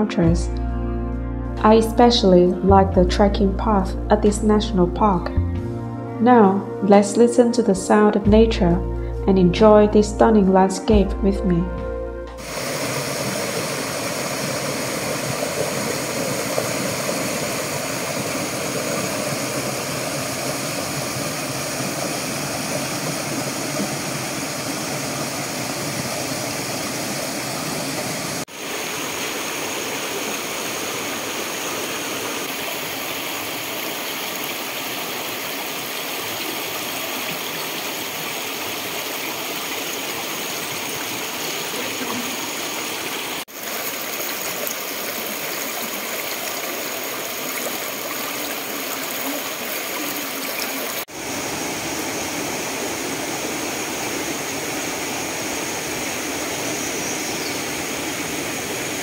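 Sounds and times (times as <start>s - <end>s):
stream rushing over rocks: 12.4s - 59.0s.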